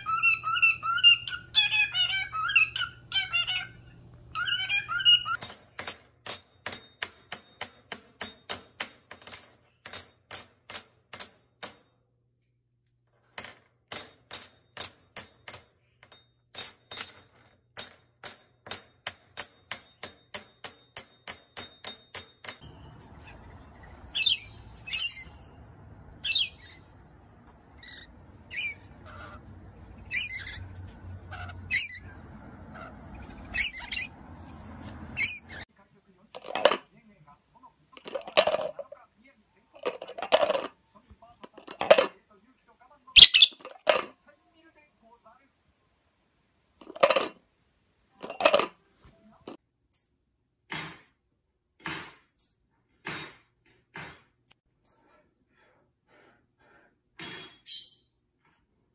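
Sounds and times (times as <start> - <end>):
bird chirps and squawks: 0.0 - 5.4, 23.3 - 25.4, 26.2 - 26.8, 27.8 - 34.2, 43.2 - 43.7
outdoor background: 0.0 - 58.9.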